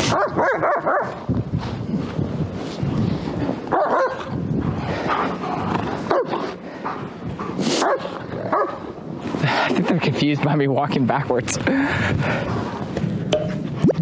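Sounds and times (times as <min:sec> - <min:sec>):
dog barking: 0:00.1 - 0:01.2, 0:03.7 - 0:04.3, 0:06.1 - 0:06.5, 0:07.8 - 0:08.9.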